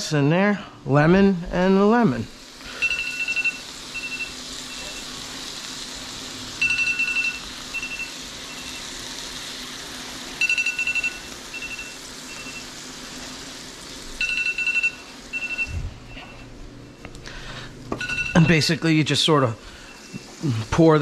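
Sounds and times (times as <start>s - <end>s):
fish frying in butter: 2.4s - 15.6s
cooking timer beeping: 2.6s - 17.1s, 17.9s - 18.8s, 19.7s - 20.4s.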